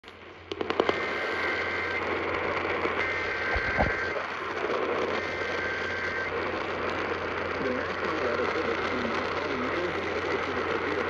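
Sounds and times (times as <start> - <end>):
radio static hiss: 0.1 - 11.0
high whistle tones: 3.1 - 4.2
low bumps: 3.5 - 4.2.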